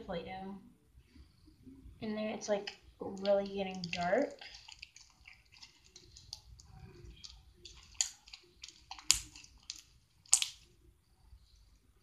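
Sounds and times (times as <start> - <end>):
crunchy slime clicking and popping: 2.6 - 10.7.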